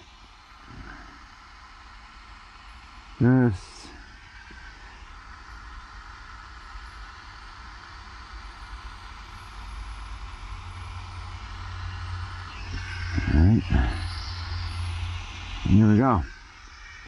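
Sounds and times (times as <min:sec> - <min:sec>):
hot-air tip hissing: 0:00.0 - 0:17.0.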